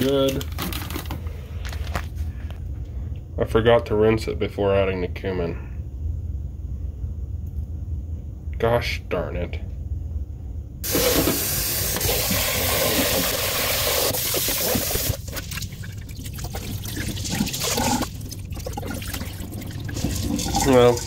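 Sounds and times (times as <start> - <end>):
faucet water filling pot: 10.9 - 21.0
water poured into sink: 10.9 - 21.0.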